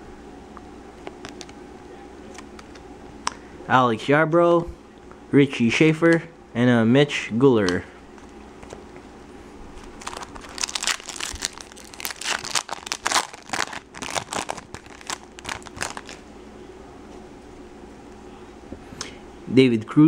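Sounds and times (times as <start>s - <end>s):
foil wrapper crinkling: 9.8s - 16.3s.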